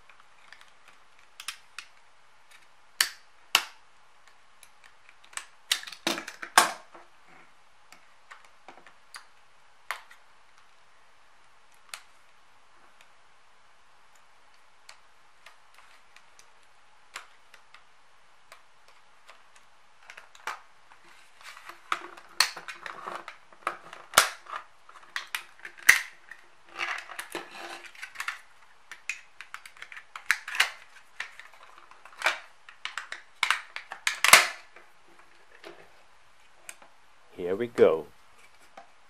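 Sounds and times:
plastic clicks and cracks: 0.0s - 6.8s, 14.1s - 21.0s, 21.7s - 35.8s.

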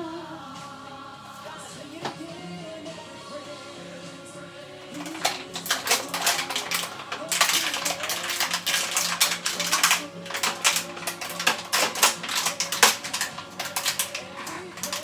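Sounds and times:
gospel song: 0.0s - 15.0s
kitchen items clattering: 4.9s - 15.0s.

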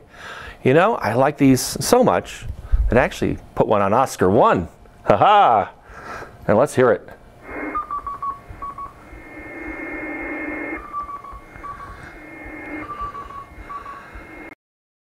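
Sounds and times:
radio receiver hiss: 7.4s - 14.6s
morse code beeps: 7.5s - 14.6s.

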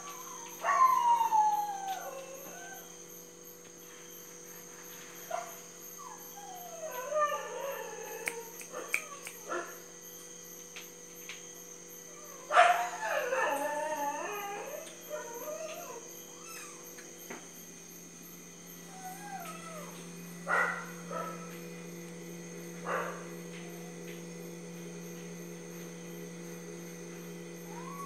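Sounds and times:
animals howling: 0.0s - 3.0s, 6.0s - 9.8s, 12.1s - 17.2s, 18.8s - 21.7s, 27.4s - 28.0s.

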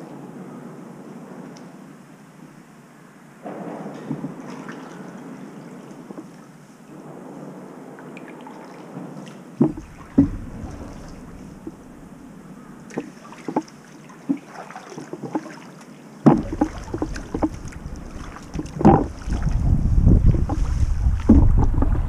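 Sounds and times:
paddle knocks: 3.4s - 5.0s, 5.9s - 6.4s, 9.6s - 22.0s
paddle splashing in water: 3.8s - 6.8s, 8.1s - 22.0s
water dripping: 8.0s - 21.8s
wind on microphone: 9.0s - 12.9s, 16.3s - 22.0s.

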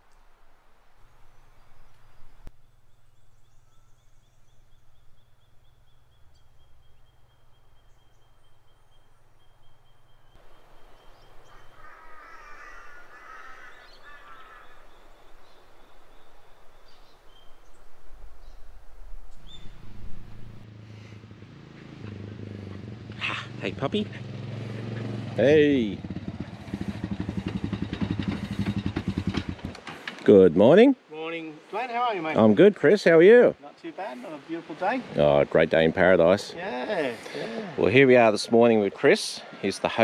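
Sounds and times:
bird trilling: 1.7s - 16.3s
birds chattering: 2.4s - 17.6s.

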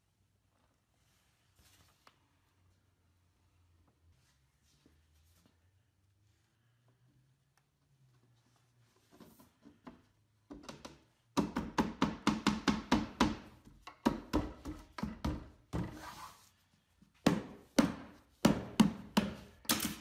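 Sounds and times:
hand tapping wooden panel: 10.5s - 15.9s.

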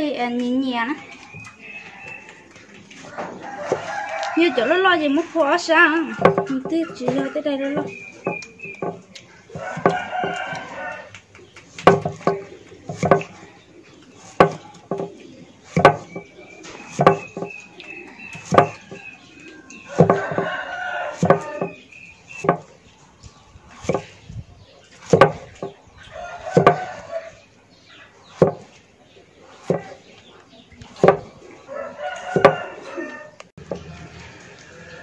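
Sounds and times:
rooster crowing: 1.7s - 5.2s, 7.8s - 11.1s, 18.0s - 21.8s, 26.1s - 27.4s, 31.7s - 35.0s
cleaver chopping on wooden block: 6.2s - 10.8s, 11.8s - 13.4s, 14.3s - 17.6s, 18.3s - 19.1s, 19.9s - 22.7s, 23.8s - 24.2s, 25.0s - 25.8s, 26.6s - 27.1s, 28.4s - 28.7s, 29.6s - 30.0s, 30.9s - 31.3s, 32.2s - 32.7s.

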